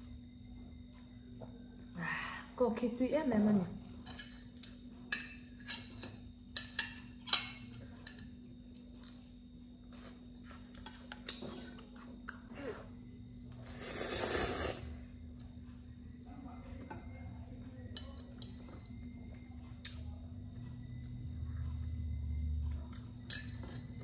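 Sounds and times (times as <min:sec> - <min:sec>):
person slurping noodles: 0:13.6 - 0:15.0.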